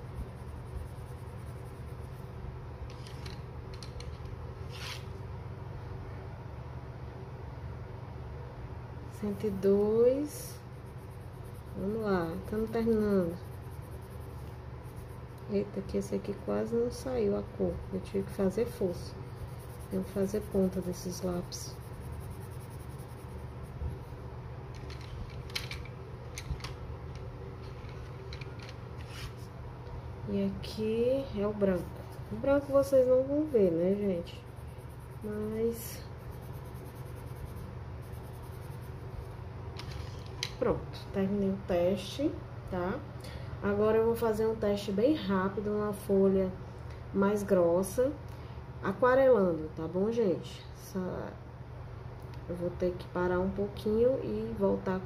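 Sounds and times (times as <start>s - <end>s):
pencil scratching on paper: 0.0s - 2.3s, 10.3s - 24.1s, 31.7s - 39.3s
steady low hum: 0.0s - 55.0s.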